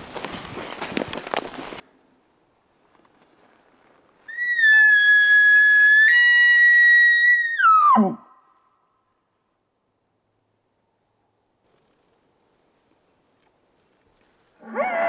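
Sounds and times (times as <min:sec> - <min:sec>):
footsteps through brush: 0:00.0 - 0:01.8
elk call whistle: 0:04.3 - 0:08.5.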